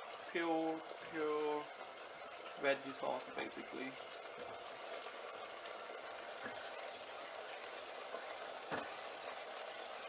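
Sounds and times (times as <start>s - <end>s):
sauce sizzling in a saucepan: 0.0s - 10.0s.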